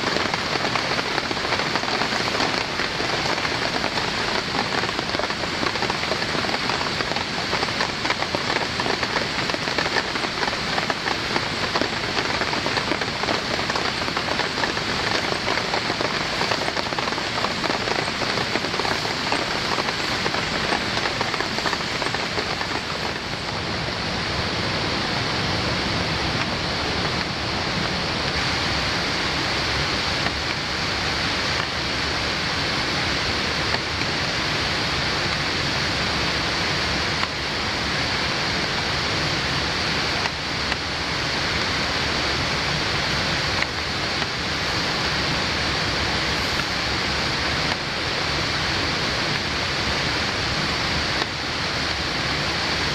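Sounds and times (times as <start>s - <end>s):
steady rain hiss: 0.0s - 52.9s
rain drop taps: 0.1s - 23.6s.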